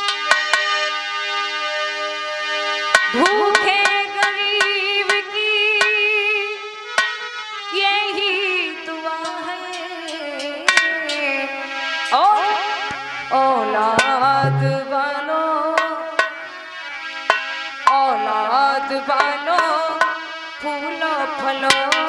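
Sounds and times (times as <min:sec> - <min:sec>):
hand drum strokes: 0:14.2 - 0:14.8
harmonium melody: 0:14.4 - 0:14.8
woman singing: 0:20.6 - 0:22.0.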